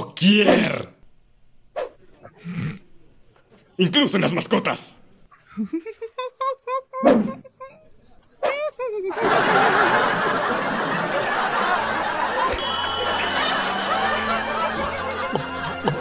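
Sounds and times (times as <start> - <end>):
audience laughing: 8.6 - 16.0.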